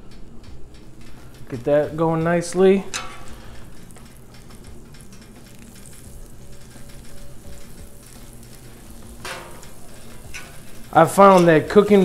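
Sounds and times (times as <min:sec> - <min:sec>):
butter sizzling on a griddle: 0:01.0 - 0:12.0
metal spatula scraping: 0:02.9 - 0:12.0.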